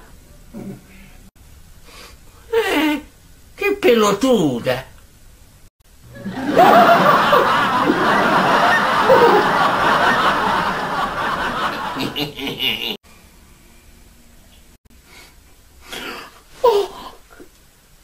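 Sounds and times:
audience laughter: 6.1 - 13.0.

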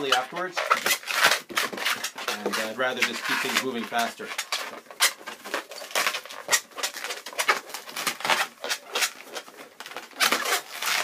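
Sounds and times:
balloon squeaking and rubbing: 0.0 - 11.0.

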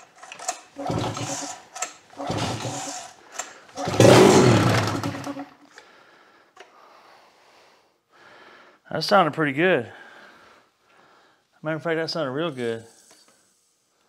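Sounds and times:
outboard motor cranking pulls: 0.2 - 5.6.

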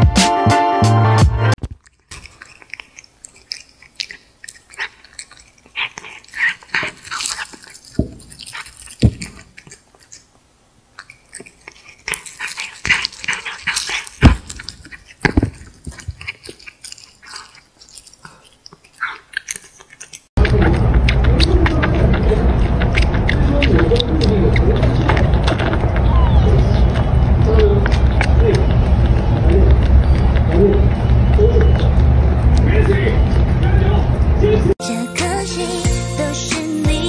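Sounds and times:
music: 0.0 - 1.6, 34.8 - 37.0
cat crunching food: 1.6 - 33.0.

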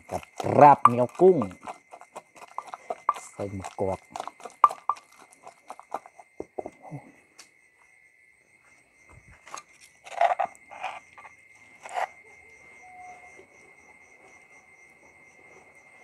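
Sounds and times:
pestle pounding in mortar: 0.0 - 6.8
spoon scraping mortar: 0.0 - 6.8, 9.4 - 12.2
insects chirring: 0.0 - 16.0.

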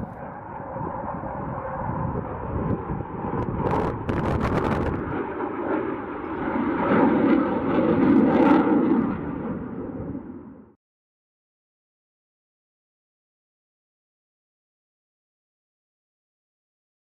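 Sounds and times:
fighter jet flying overhead: 0.0 - 10.8.

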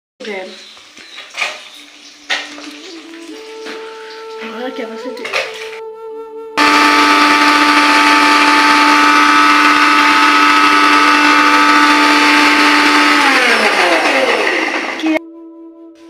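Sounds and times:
mixer grinder whining: 6.6 - 15.2.

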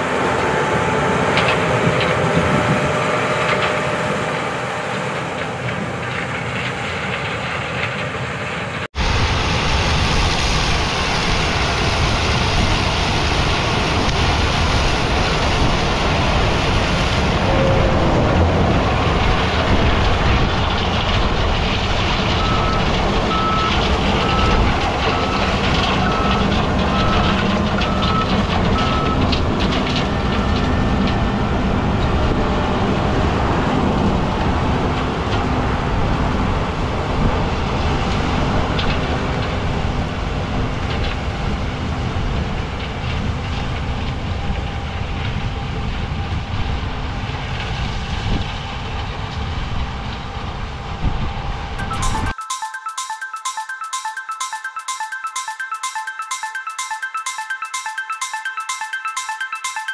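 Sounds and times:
combine harvester running: 0.0 - 46.7
high beeping: 22.4 - 29.2, 51.8 - 59.9.

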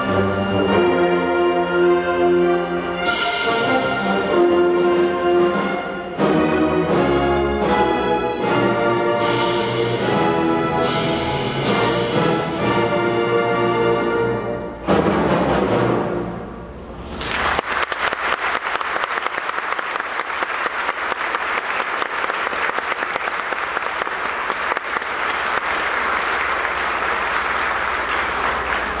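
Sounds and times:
audience applause: 17.2 - 29.0.

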